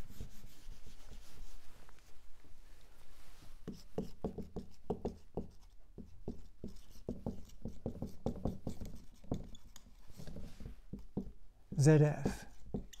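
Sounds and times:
writing taps and scrapes: 3.6s - 13.0s.

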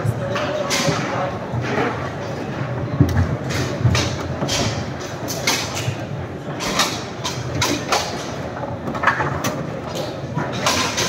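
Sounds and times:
murmur of chatter: 0.0s - 11.0s
foosball clacks: 3.0s - 11.0s.

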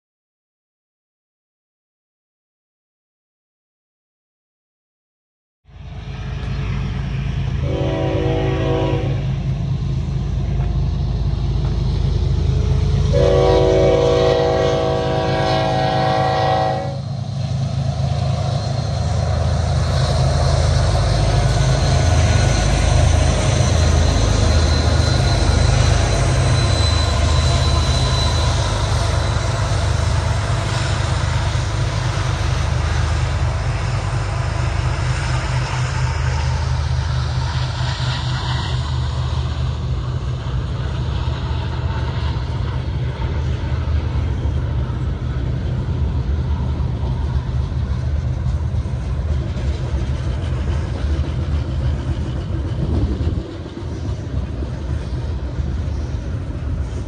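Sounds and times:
locomotive rumble: 5.7s - 57.0s
train horn blasts: 7.6s - 9.5s, 12.9s - 17.1s.

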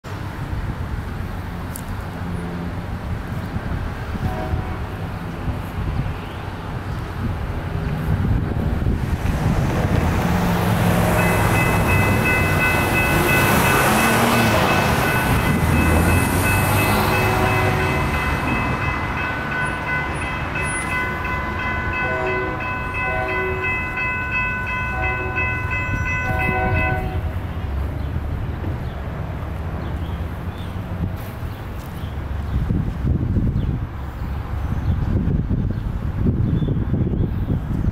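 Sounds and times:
railroad crossing bells ringing: 10.4s - 28.0s.

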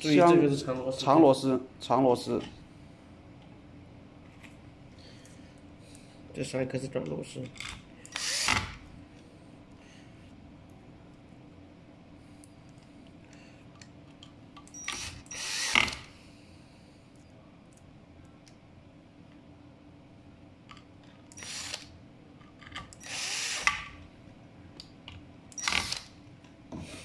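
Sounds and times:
cordless drill driving screws: 8.1s - 8.8s, 14.8s - 16.1s, 21.4s - 21.9s, 23.0s - 23.8s, 25.6s - 26.1s.

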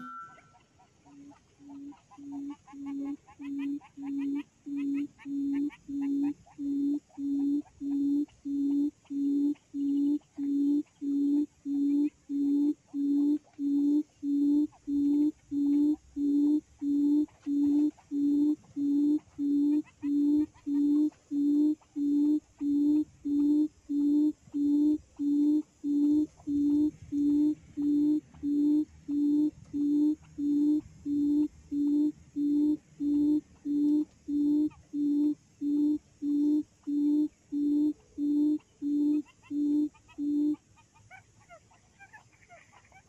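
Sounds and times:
quail call through speaker: 0.0s - 11.1s, 38.4s - 43.0s.

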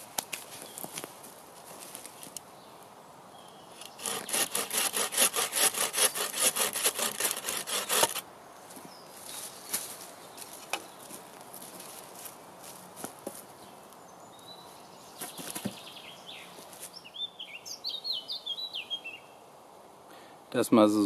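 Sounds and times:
bow saw cutting branch: 3.8s - 8.2s.

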